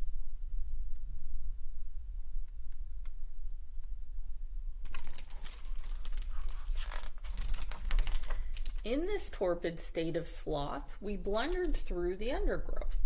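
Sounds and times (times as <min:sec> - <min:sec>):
low hum: 0:00.0 - 0:06.3
book pages rustling and turning: 0:04.9 - 0:09.2.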